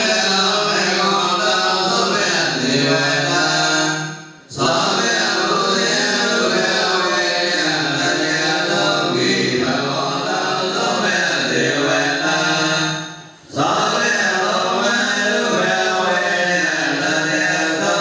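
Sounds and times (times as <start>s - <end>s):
voices chanting: 4.5s - 18.0s.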